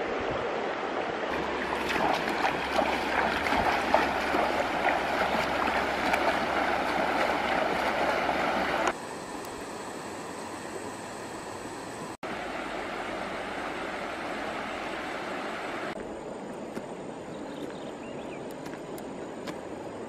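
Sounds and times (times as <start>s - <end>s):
river running over stones: 0.0s - 8.9s, 12.3s - 17.7s
person wading splashing: 1.3s - 8.9s.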